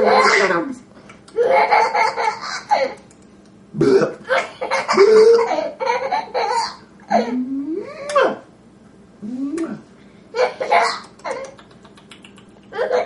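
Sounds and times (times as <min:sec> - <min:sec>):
toddler laughing: 0:01.4 - 0:03.0, 0:04.3 - 0:07.4, 0:10.4 - 0:11.7, 0:12.7 - 0:13.0.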